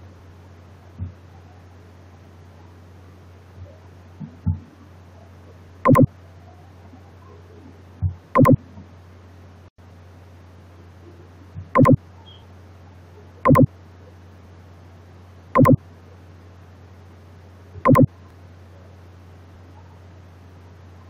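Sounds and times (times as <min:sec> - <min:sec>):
steady low hum: 0:00.0 - 0:21.0
mouse clicks: 0:05.9 - 0:06.1, 0:08.4 - 0:08.6, 0:11.8 - 0:12.0, 0:13.5 - 0:13.7, 0:15.6 - 0:15.8, 0:17.9 - 0:18.1.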